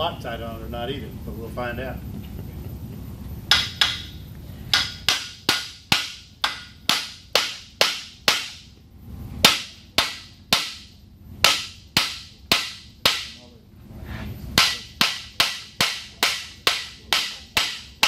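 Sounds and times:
hammer striking metal bowls: 3.5s - 8.7s, 9.4s - 13.4s, 14.5s - 18.0s.

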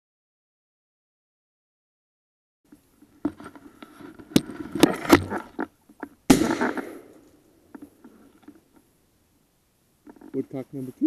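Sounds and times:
shotgun shot: 6.3s - 7.2s.

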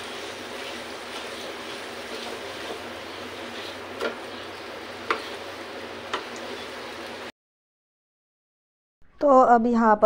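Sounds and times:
soft sizzle in pan: 0.0s - 7.3s
spatula knocking against pan: 4.0s - 4.3s, 5.0s - 5.4s, 6.1s - 6.3s.

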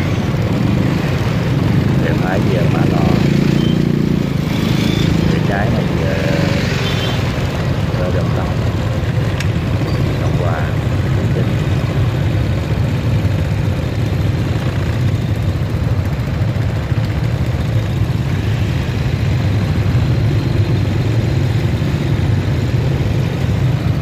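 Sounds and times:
motorbike engines idling: 0.0s - 24.0s.

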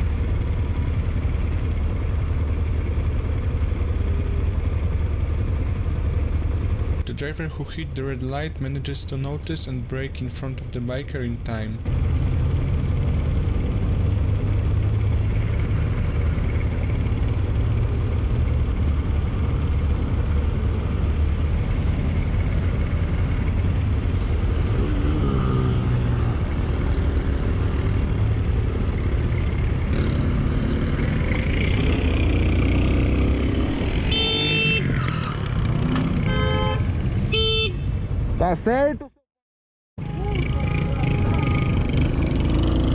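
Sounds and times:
motorcycle engine rumble: 0.0s - 38.5s, 40.0s - 42.9s
wind: 0.0s - 39.2s, 40.0s - 42.9s
vehicle horn blasts: 34.1s - 34.9s, 36.2s - 38.0s.

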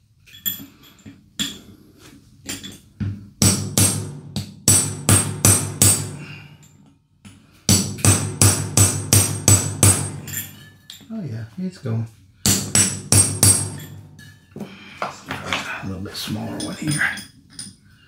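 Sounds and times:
hammer striking metal punch: 2.6s - 6.2s, 7.7s - 10.7s, 12.4s - 14.4s.

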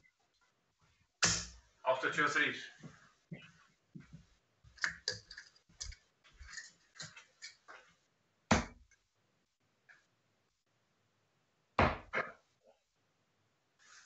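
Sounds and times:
darts clicking and tapping: 1.2s - 1.6s
thud on dartboard: 11.8s - 12.1s.

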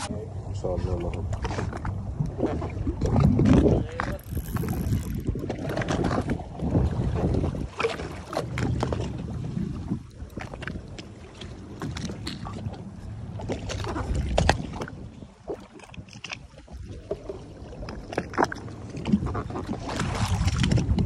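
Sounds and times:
water slapping against boat: 0.0s - 21.0s
wind buffeting microphone: 0.0s - 21.0s.

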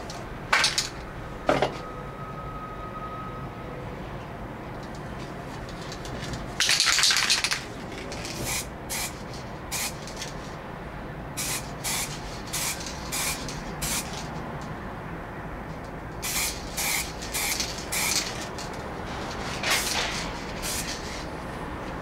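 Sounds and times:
spray can hissing: 8.4s - 10.2s, 11.4s - 14.3s, 16.2s - 18.5s, 19.7s - 21.2s.

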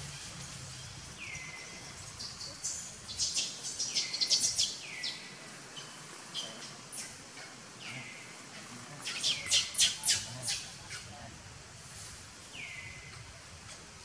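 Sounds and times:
birds calling: 0.0s - 11.2s.

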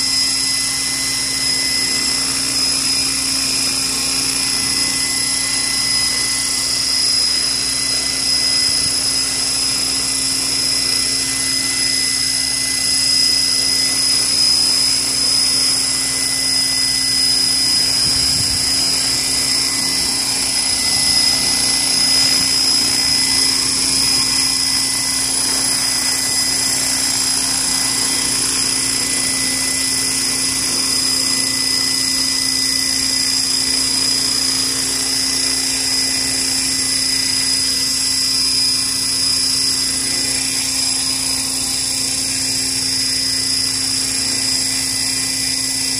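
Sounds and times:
model helicopter rotor whine: 0.0s - 45.9s.

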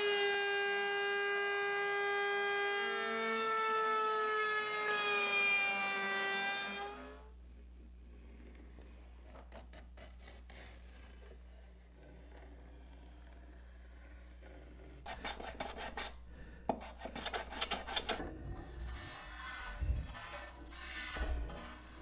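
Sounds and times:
router whining cutting wood: 0.0s - 7.3s
pencil scratching on wood: 8.2s - 22.0s.

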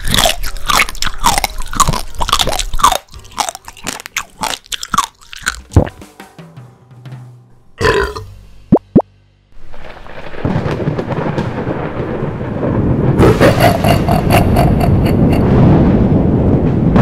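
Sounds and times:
rain: 9.6s - 14.2s, 15.4s - 17.0s
rumbling thunder: 9.6s - 17.0s.

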